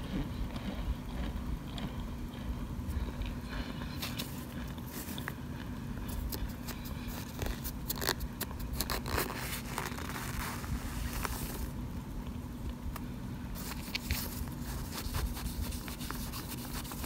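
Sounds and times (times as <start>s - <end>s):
spoon crunching dry cornstarch: 13.6s - 17.0s.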